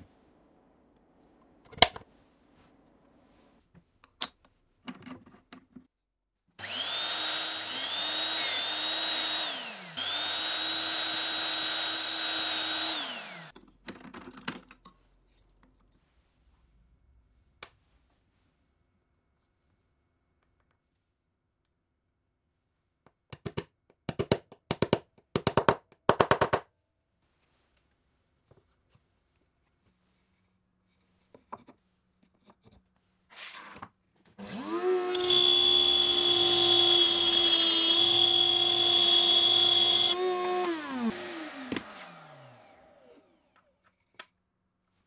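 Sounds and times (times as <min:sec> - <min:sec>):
router whining: 0:06.6 - 0:13.5, 0:34.4 - 0:43.7.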